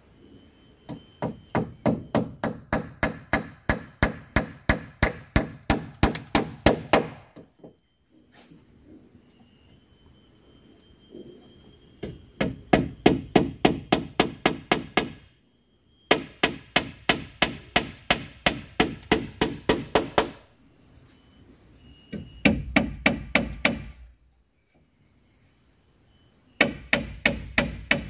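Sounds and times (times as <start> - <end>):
hammer striking wooden poles: 0.9 - 7.8, 12.0 - 15.2, 16.1 - 20.4, 22.2 - 24.0, 26.6 - 28.0.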